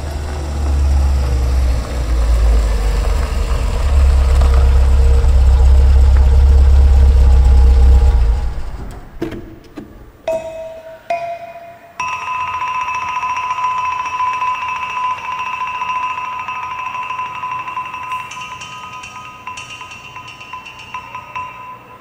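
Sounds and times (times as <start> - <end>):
chime-like mallet notes: 10.3 - 22.0.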